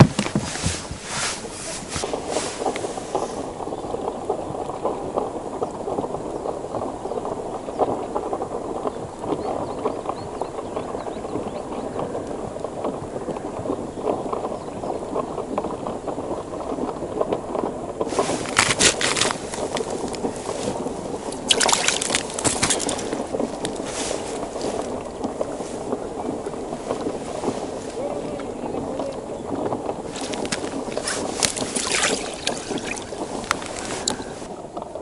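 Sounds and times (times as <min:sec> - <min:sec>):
rustling and handling noise: 0:00.0 - 0:03.6, 0:18.0 - 0:28.1, 0:29.9 - 0:34.6
low crackling noise: 0:00.0 - 0:35.0.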